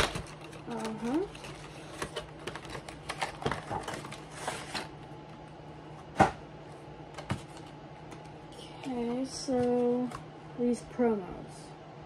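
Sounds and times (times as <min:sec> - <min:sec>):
cardboard box clicks and rustles: 0:00.0 - 0:04.9.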